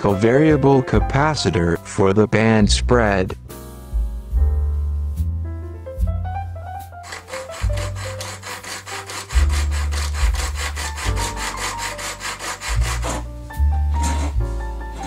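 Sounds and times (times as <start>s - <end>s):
hacksaw cutting metal sheet: 7.0s - 13.3s, 13.9s - 14.4s.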